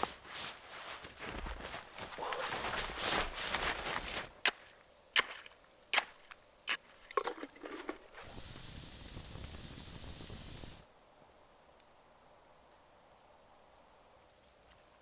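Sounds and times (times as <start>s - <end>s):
steady hiss: 0.0s - 5.0s, 7.8s - 14.6s.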